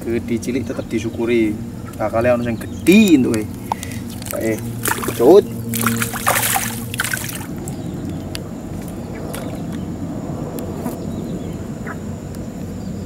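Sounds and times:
steady low rumble: 0.0s - 13.0s
faint ticks: 2.9s - 5.0s.

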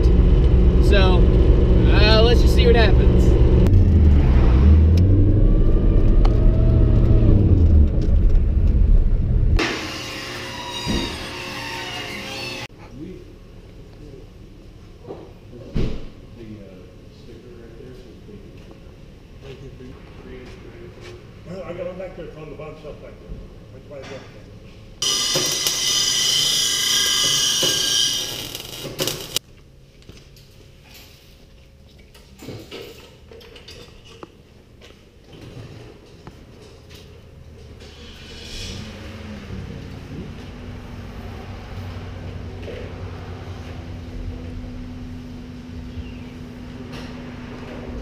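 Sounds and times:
loud low engine drone: 0.0s - 9.8s, 38.6s - 48.0s
garage background noise: 0.0s - 48.0s
power tool cutting metal pipe: 9.6s - 12.7s, 25.0s - 29.4s.

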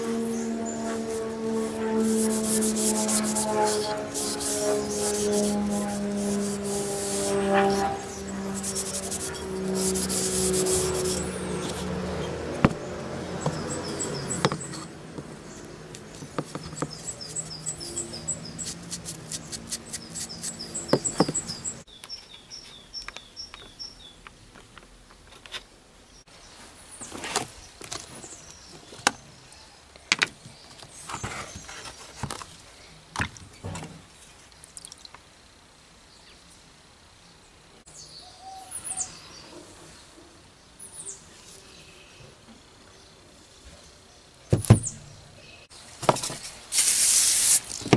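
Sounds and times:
birds chirping: 0.0s - 24.3s, 37.4s - 46.0s
rubbing on wooden handle: 0.7s - 12.4s.

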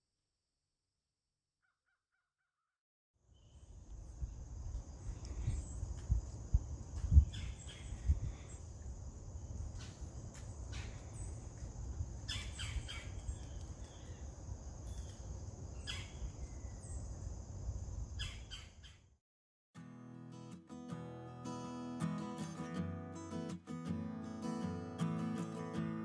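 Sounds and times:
crickets chirping: 3.3s - 19.0s
bird chirps: 7.1s - 8.6s, 12.3s - 17.2s, 18.2s - 19.1s.

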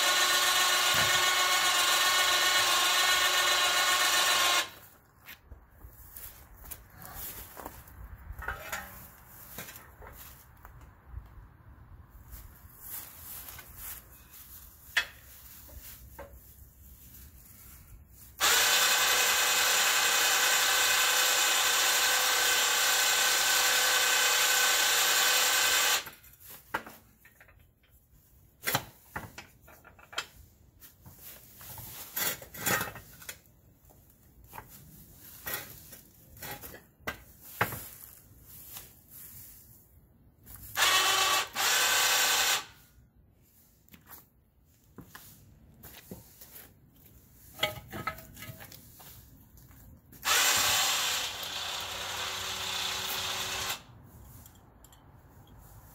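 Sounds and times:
electric winch motor whine: 0.0s - 4.8s, 18.4s - 26.1s, 40.8s - 42.7s, 50.2s - 53.9s
metal clanks and knocks: 8.4s - 9.0s, 47.6s - 48.8s.

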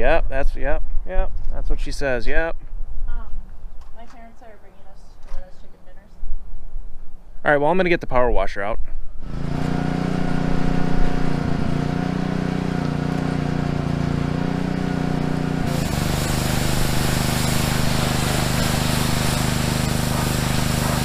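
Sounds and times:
pressure washer engine hum: 9.2s - 21.0s
water spray hissing: 14.5s - 21.0s.

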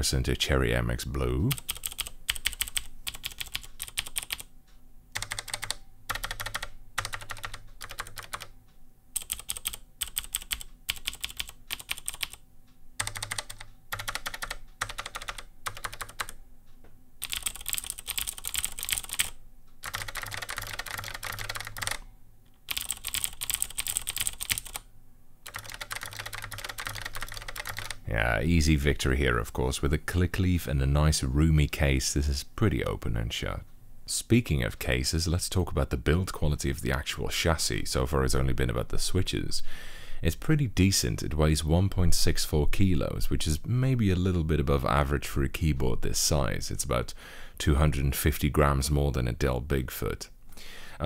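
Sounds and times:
mechanical keyboard typing: 1.5s - 4.5s, 5.2s - 8.5s, 9.2s - 12.4s, 13.0s - 16.4s, 17.2s - 22.0s, 22.6s - 24.8s, 25.4s - 28.0s.

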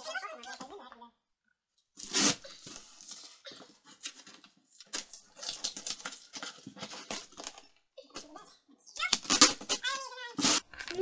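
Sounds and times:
cardboard and tape scraping: 2.0s - 7.6s, 9.0s - 11.0s.

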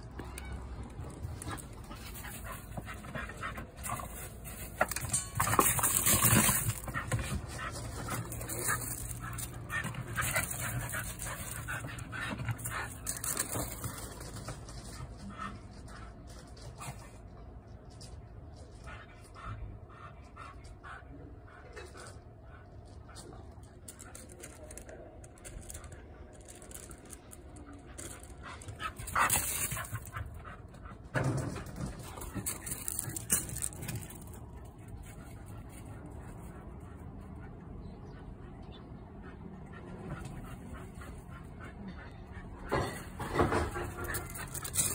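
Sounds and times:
gravel crunching: 0.0s - 17.1s, 22.8s - 36.9s, 42.6s - 44.9s
scraping noises: 0.0s - 19.2s, 21.6s - 37.2s, 39.8s - 44.9s
dog panting: 35.0s - 44.9s.

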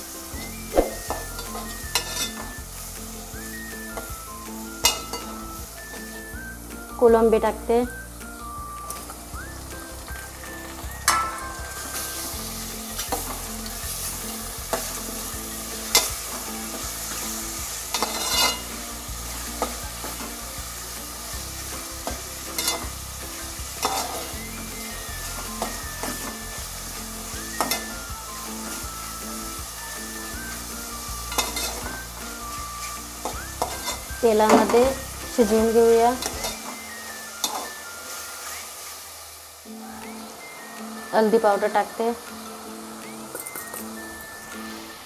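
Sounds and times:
prawns sizzling in hot oil: 0.0s - 45.0s
metal spatula clinking against pot: 1.4s - 2.4s, 4.8s - 5.3s, 11.1s - 12.2s, 15.9s - 16.2s, 17.9s - 18.7s, 22.6s - 22.9s, 31.3s - 31.8s.

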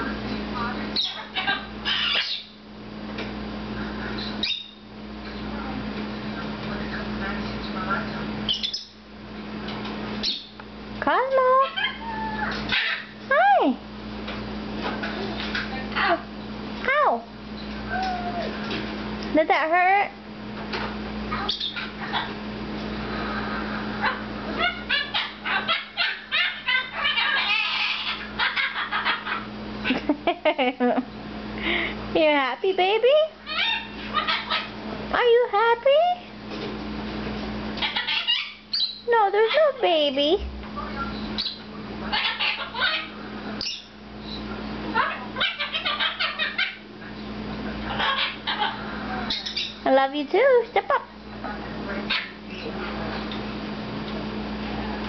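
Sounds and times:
parrot chattering calls: 1.0s - 2.6s, 4.2s - 4.8s, 8.5s - 9.0s, 11.5s - 13.4s, 21.3s - 22.4s, 23.7s - 29.6s, 33.2s - 35.2s, 37.8s - 39.9s, 41.1s - 46.9s, 47.8s - 49.9s, 52.1s - 52.8s.

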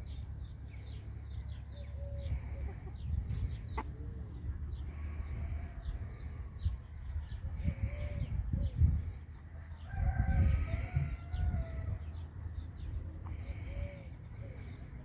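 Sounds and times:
chickens clucking: 1.8s - 4.8s.

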